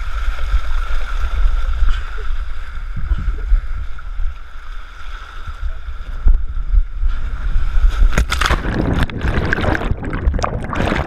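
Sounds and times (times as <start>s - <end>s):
wind buffeting microphone: 2.8s - 4.3s, 5.6s - 11.0s
water rushing down a slide: 7.8s - 11.0s.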